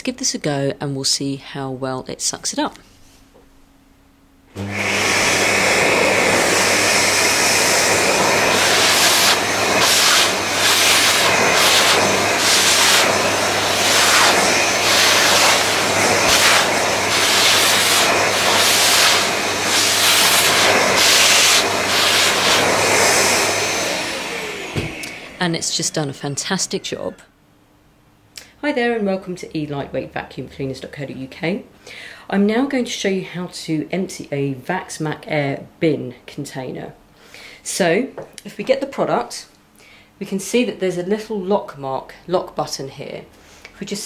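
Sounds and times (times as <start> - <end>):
vacuum cleaner switching on: 4.5 - 25.8
vacuum cleaner running: 4.5 - 26.9.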